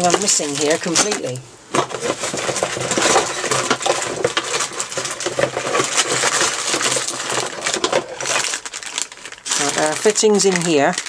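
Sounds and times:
packaging rustling and crinkling: 0.0 - 11.0
brass fittings clinking: 0.7 - 8.1.

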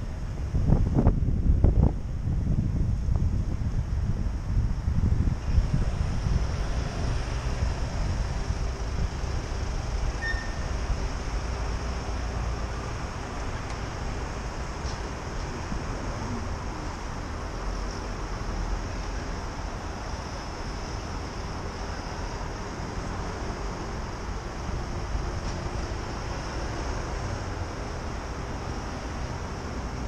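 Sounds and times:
road traffic hum: 0.0 - 30.0
wind rumbling on microphone: 0.0 - 30.0.

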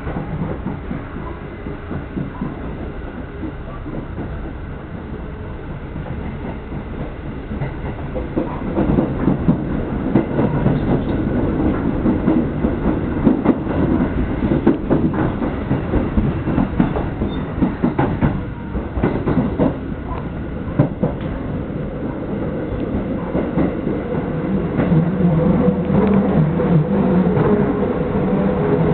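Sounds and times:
train wheels rumbling: 0.0 - 28.9
wheels clacking over rail joints: 6.0 - 25.1.

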